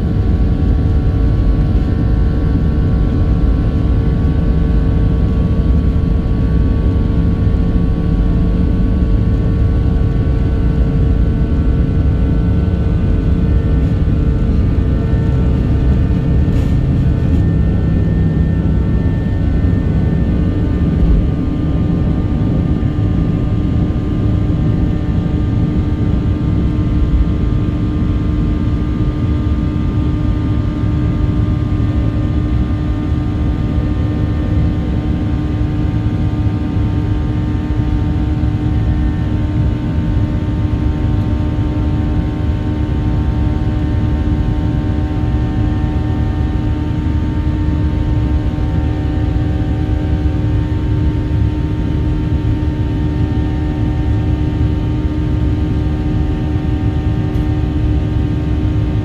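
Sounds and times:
jet engines rumbling in cabin: 0:00.0 - 0:59.0
steady engine hum: 0:00.0 - 0:59.0.

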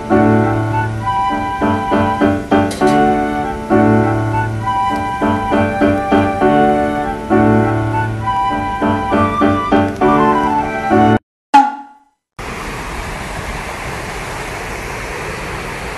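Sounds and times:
piano background music: 0:00.0 - 0:11.2.

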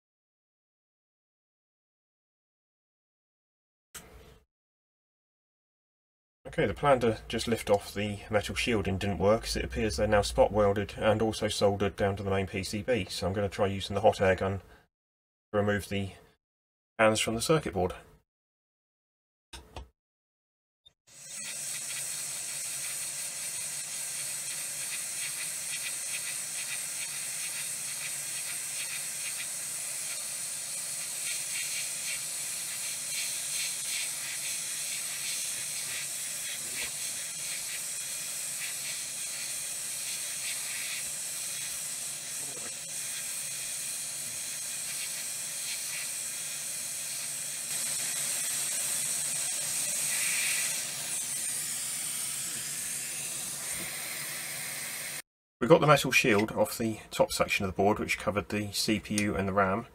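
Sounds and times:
hot air gun hissing: 0:21.1 - 0:55.2.

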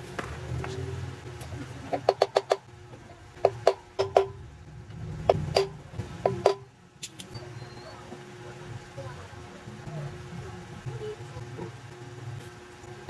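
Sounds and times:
hammer striking steel rod: 0:03.4 - 0:04.4, 0:05.3 - 0:06.7.

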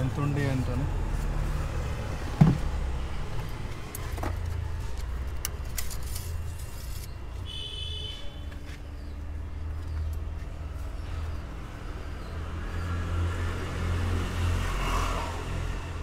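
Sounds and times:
plastic bottle thump: 0:02.4 - 0:02.7.

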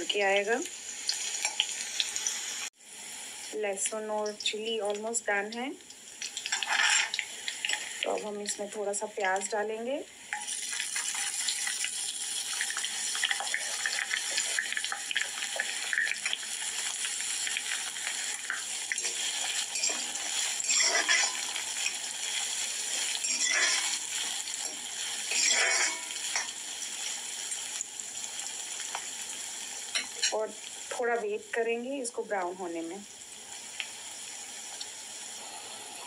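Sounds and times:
onion sizzling in hot oil: 0:00.0 - 0:36.0
metal ladle scraping pan: 0:06.5 - 0:07.2, 0:18.9 - 0:22.0, 0:23.1 - 0:26.5.

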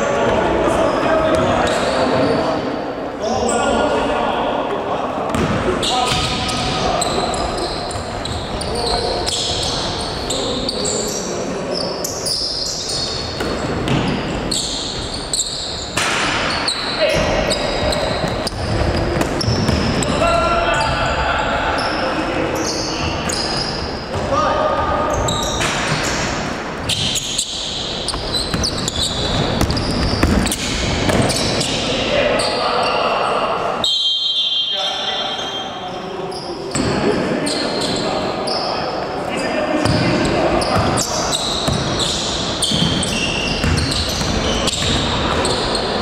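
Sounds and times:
sneaker squeaks on floor: 0:00.8 - 0:02.6, 0:05.3 - 0:46.0
basketball bouncing on court: 0:05.3 - 0:07.2, 0:17.2 - 0:20.2, 0:28.1 - 0:31.6, 0:39.8 - 0:45.8.

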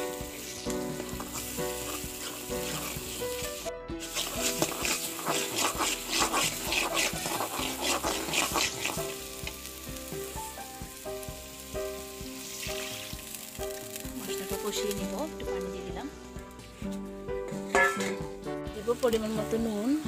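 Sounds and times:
water hissing in hot pan: 0:00.0 - 0:17.0, 0:17.7 - 0:20.0
background music: 0:00.0 - 0:20.0
paste sizzling in oil: 0:00.0 - 0:20.0
metal spatula scraping a pan: 0:00.3 - 0:03.4, 0:04.0 - 0:09.6, 0:17.5 - 0:18.4.

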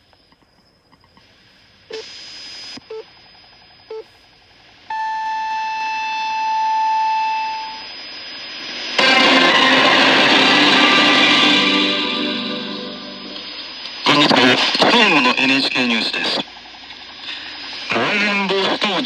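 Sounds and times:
long high radio tone: 0:01.9 - 0:03.1, 0:03.9 - 0:19.0
radio time signal pips: 0:04.8 - 0:19.0
radio broadcast with static: 0:13.2 - 0:19.0.

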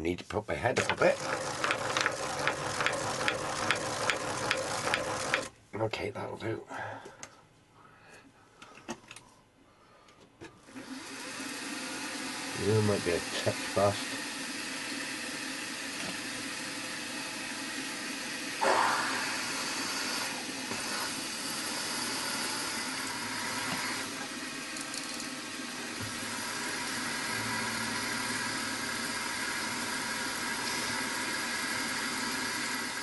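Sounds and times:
milling machine drilling metal: 0:26.1 - 0:33.0.

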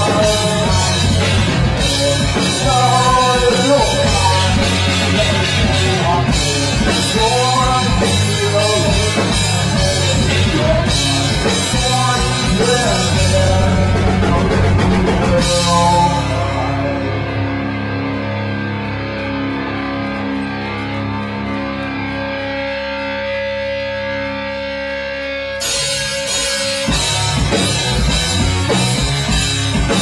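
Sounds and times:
person singing: 0:00.0 - 0:17.6
drum kit: 0:00.0 - 0:18.0, 0:25.5 - 0:30.0
bass guitar: 0:00.0 - 0:30.0
electric guitar: 0:00.0 - 0:30.0.

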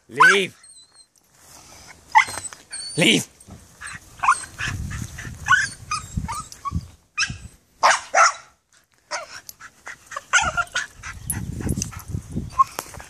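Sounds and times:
small dog barking: 0:07.2 - 0:08.5.

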